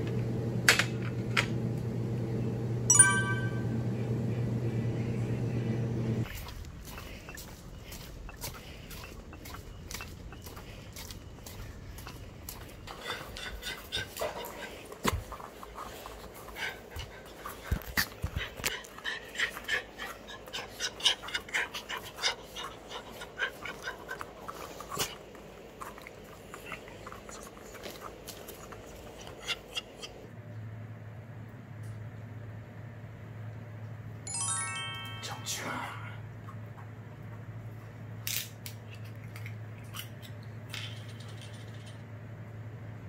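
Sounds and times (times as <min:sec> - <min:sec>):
dogs panting and whimpering: 0:06.2 - 0:30.3.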